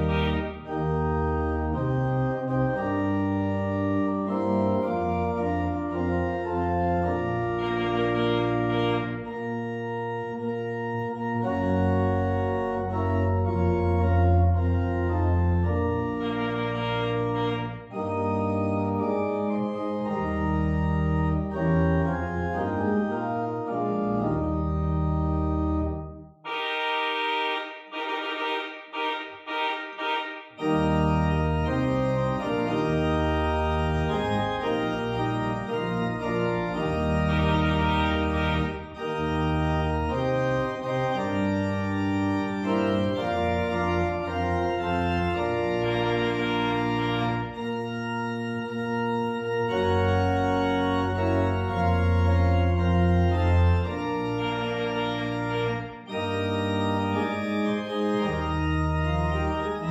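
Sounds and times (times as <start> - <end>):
deep organ pedal bass: 0.0 - 26.4, 30.6 - 59.9
church organ sustained chords: 0.0 - 59.9.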